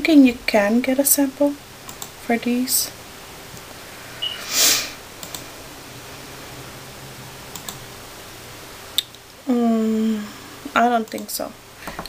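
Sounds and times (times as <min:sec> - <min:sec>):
faint clicks: 0:01.9 - 0:02.2, 0:05.2 - 0:05.5
breathy rush of noise: 0:03.7 - 0:10.7.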